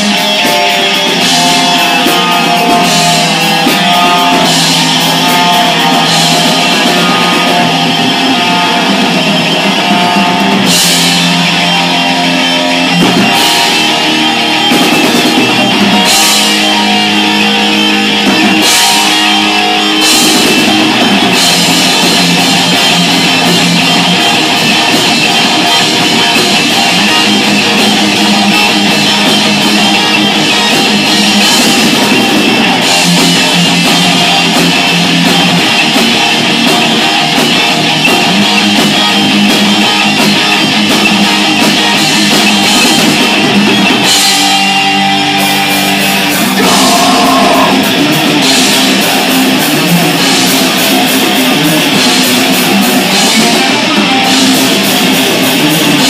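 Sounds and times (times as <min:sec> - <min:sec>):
distorted electric guitars: 0:00.0 - 0:56.0
drum kit: 0:00.0 - 0:56.0.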